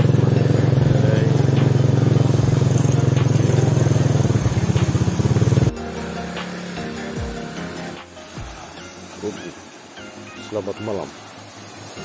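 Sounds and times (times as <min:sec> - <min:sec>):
motorcycle engine idling: 0:00.0 - 0:07.4.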